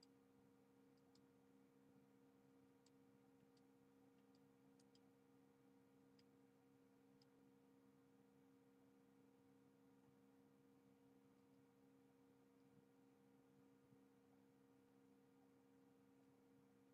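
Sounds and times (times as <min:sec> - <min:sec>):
faint electrical hum: 0:00.0 - 0:16.9
faint small clicks: 0:00.9 - 0:01.3, 0:02.8 - 0:05.1, 0:06.1 - 0:06.4, 0:07.1 - 0:07.4.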